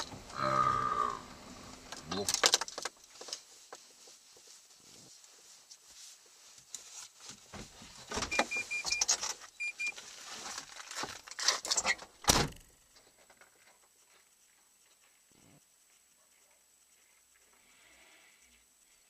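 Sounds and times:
rustling in car cabin: 0:01.8 - 0:12.1
short electronic car beeps: 0:08.3 - 0:09.9.

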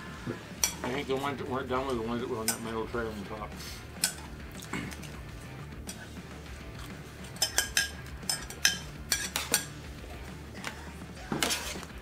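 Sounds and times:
cutlery clinking on metal pans: 0:00.6 - 0:02.9, 0:04.0 - 0:05.2, 0:05.8 - 0:06.1, 0:06.8 - 0:09.8, 0:10.6 - 0:12.0.

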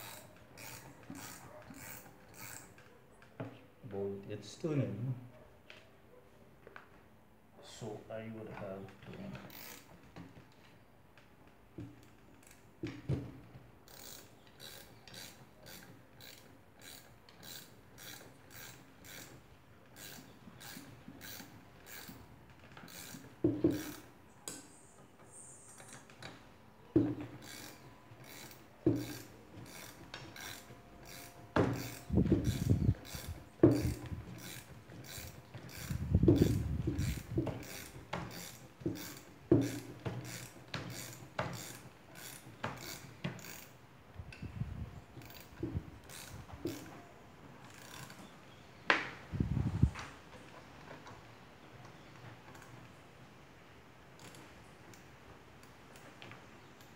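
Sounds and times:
ratchet wrench clicking: 0:00.0 - 0:02.9, 0:09.5 - 0:09.9, 0:13.9 - 0:24.6, 0:27.3 - 0:43.8, 0:45.2 - 0:46.9, 0:47.6 - 0:48.2, 0:54.2 - 0:55.0.

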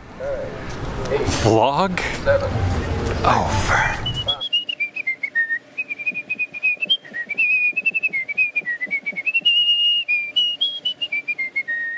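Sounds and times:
tune whistled: 0:04.0 - 0:11.9.

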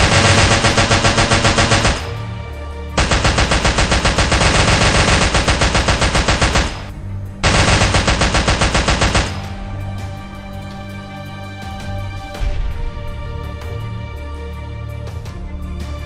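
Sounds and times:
automatic rifle fire: 0:00.0 - 0:02.3, 0:03.0 - 0:09.6
background music: 0:00.0 - 0:16.0.

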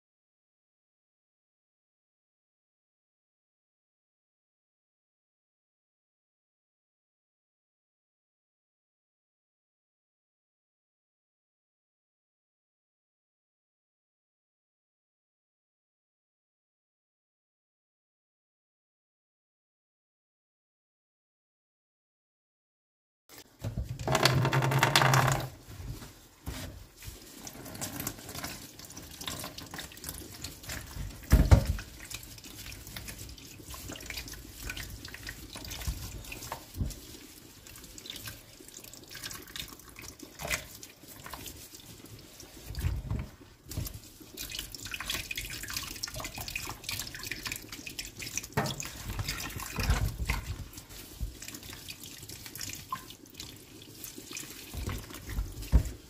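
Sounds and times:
water splashing and dripping: 0:23.3 - 0:56.0
thump: 0:31.3 - 0:31.8.

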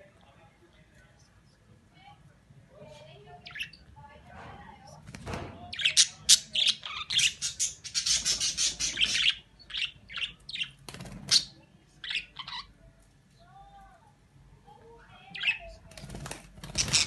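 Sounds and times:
budgerigar chirping and squawking: 0:03.4 - 0:03.8, 0:05.8 - 0:12.7, 0:16.7 - 0:17.0.

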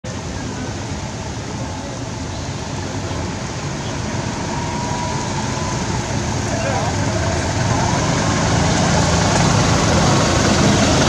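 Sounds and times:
road traffic noise: 0:00.0 - 0:11.0
motorbike engine approaching: 0:03.8 - 0:11.0.

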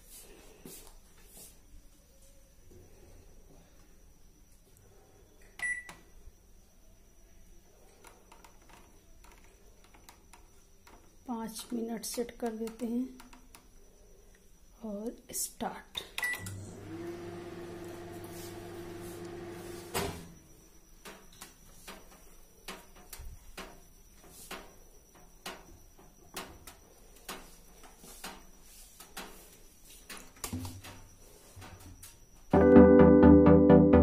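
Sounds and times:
faint clicks and knocks: 0:07.9 - 0:14.5
microwave oven humming: 0:16.2 - 0:21.0.

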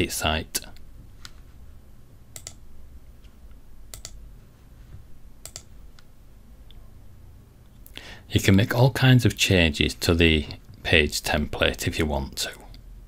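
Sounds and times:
faint low hum: 0:00.0 - 0:13.0
computer mouse clicking: 0:02.3 - 0:02.6, 0:03.9 - 0:04.2, 0:05.4 - 0:06.1.

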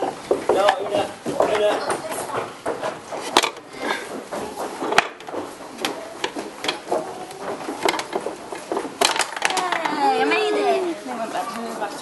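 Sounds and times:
wooden clicks and knocks: 0:00.0 - 0:10.2
faint voices: 0:03.6 - 0:12.0.

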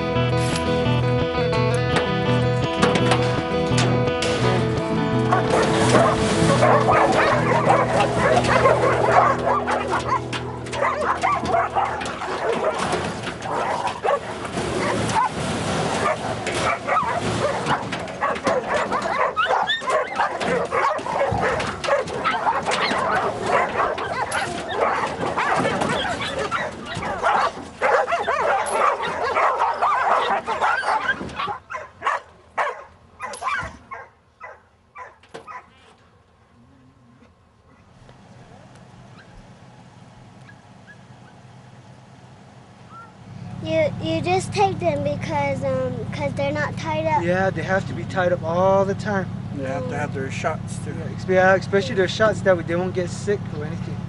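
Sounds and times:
background music: 0:00.0 - 0:12.9
dogs barking and yipping: 0:02.7 - 0:35.9, 0:39.1 - 0:39.6, 0:40.3 - 0:41.8, 0:42.8 - 0:43.7.

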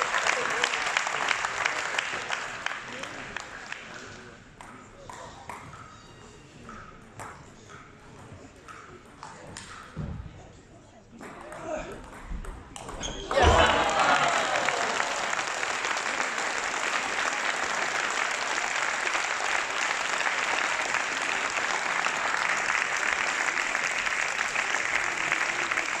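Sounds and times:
spectators applauding: 0:00.0 - 0:04.3, 0:13.3 - 0:26.0.

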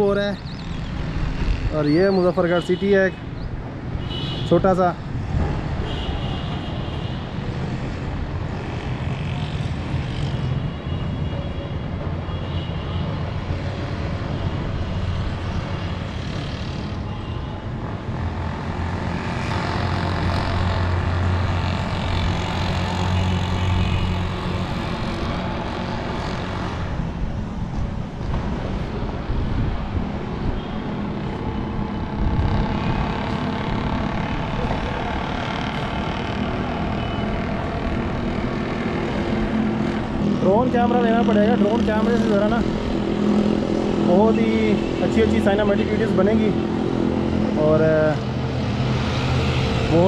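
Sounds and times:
town traffic hum: 0:00.0 - 0:50.0
wind on microphone: 0:31.8 - 0:35.2.

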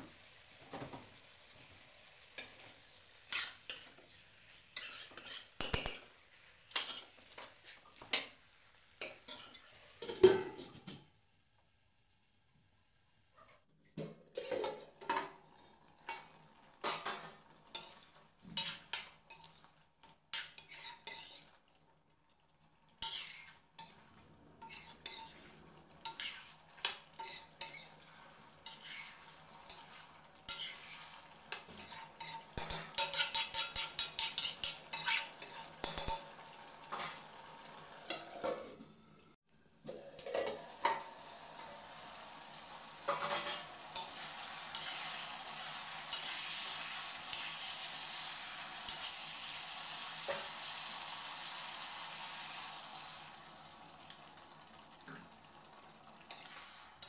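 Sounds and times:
curry sizzling: 0:00.0 - 0:11.0, 0:14.2 - 0:57.0
ladle scraping metal pot: 0:04.8 - 0:06.0, 0:20.3 - 0:21.5, 0:23.0 - 0:24.0, 0:24.6 - 0:28.0, 0:28.6 - 0:36.2.

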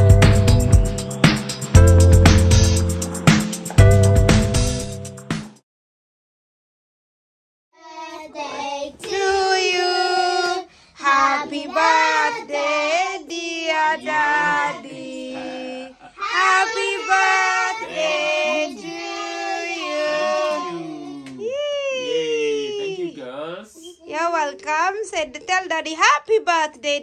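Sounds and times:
girls singing together: 0:07.8 - 0:21.2.

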